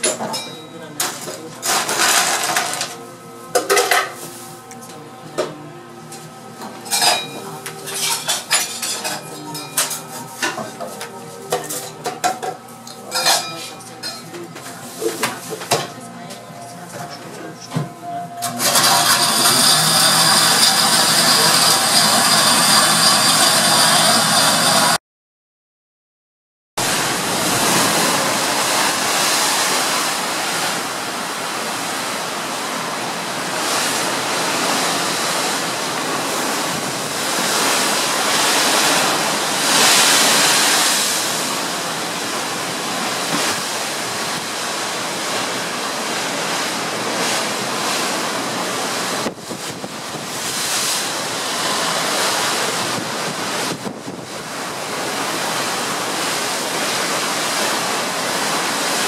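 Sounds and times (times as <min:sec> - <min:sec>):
sea rushing along ship's side: 0:00.0 - 0:25.0, 0:26.8 - 0:59.0
wind buffeting microphone: 0:49.2 - 0:50.8, 0:52.7 - 0:54.5.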